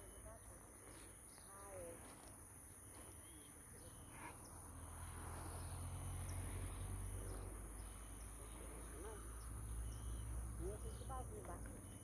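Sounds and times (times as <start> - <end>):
high-pitched insect chorus: 0.0 - 12.0
bird chirps: 2.7 - 12.0.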